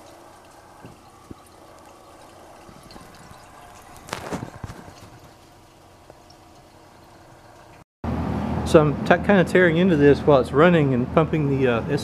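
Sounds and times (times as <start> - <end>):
refrigerant bubbling and gurgling: 0.0 - 7.8.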